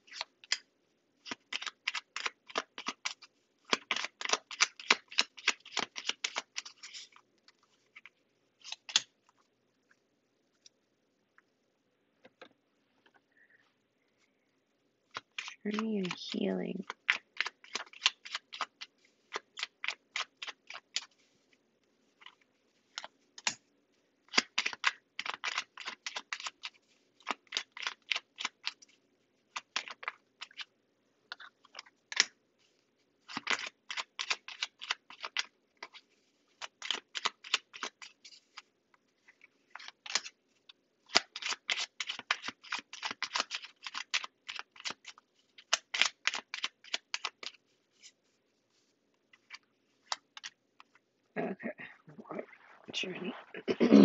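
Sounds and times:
cards being shuffled: 1.2 - 9.5, 15.1 - 21.5, 22.2 - 23.6, 24.3 - 30.7, 31.3 - 51.0.

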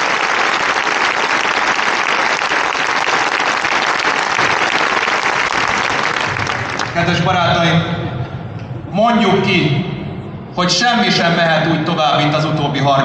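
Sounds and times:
large crowd applauding: 0.0 - 7.2.

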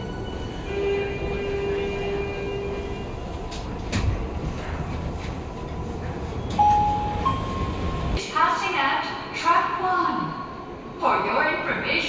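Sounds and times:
train rumbling in a tunnel: 0.0 - 12.0.

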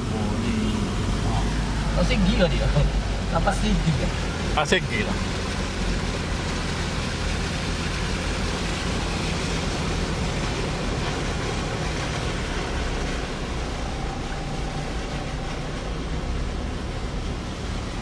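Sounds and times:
car engine humming: 0.0 - 18.0
tyres pushing through water: 0.0 - 18.0.

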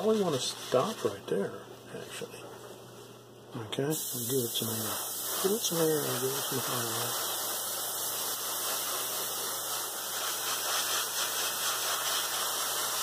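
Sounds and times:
airbrush hissing: 3.9 - 13.0.

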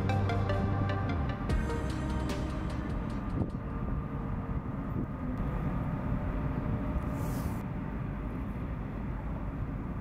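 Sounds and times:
ship engine rumbling: 0.0 - 7.6
brief high hiss: 7.1 - 7.6.

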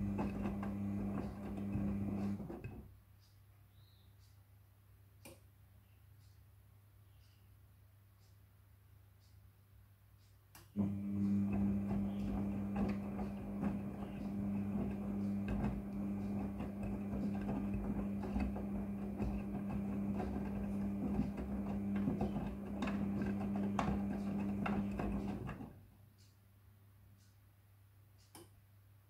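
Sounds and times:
washing machine motor humming: 0.0 - 2.9, 10.8 - 25.8.

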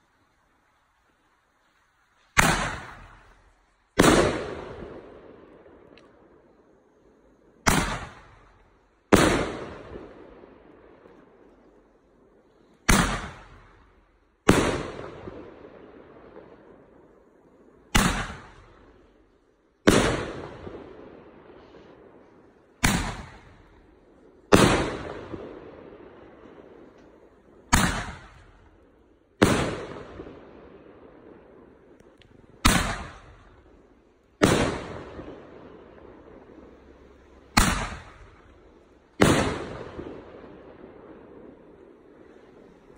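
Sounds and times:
fireworks bangs echoing: 2.3 - 6.0, 7.6 - 11.5, 12.8 - 17.2, 17.9 - 19.1, 19.8 - 42.9.

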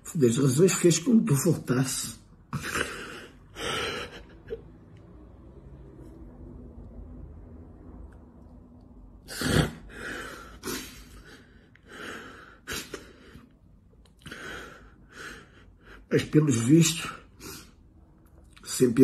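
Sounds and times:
man sobbing: 2.5 - 4.8.

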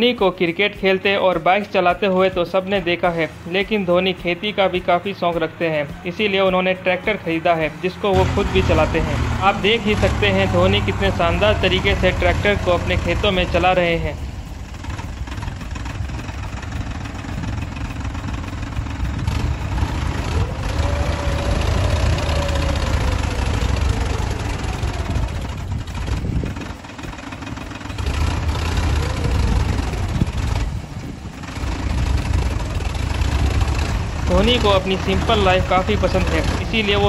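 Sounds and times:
diesel tractor engine rumbling: 0.0 - 37.0.

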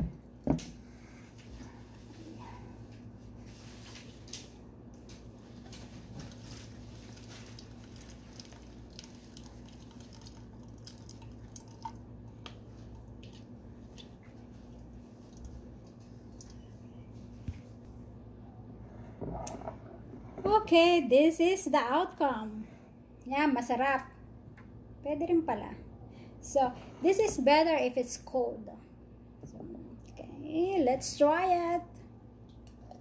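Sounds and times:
juice dripping: 4.3 - 17.1, 32.4 - 33.0
pulp squishing through strainer: 5.7 - 16.6.

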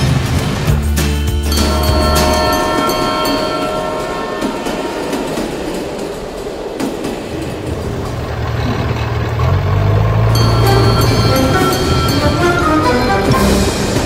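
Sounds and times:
low engine hum: 7.4 - 14.0
toy train rattling on track: 10.3 - 12.6.

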